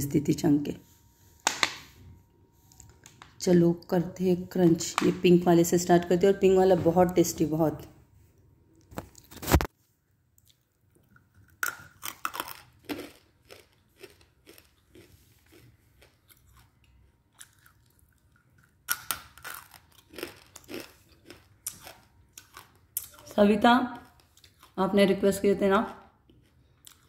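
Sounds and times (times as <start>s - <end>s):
crunching and chewing: 10.4s - 23.4s, 24.0s - 24.8s, 25.9s - 27.0s.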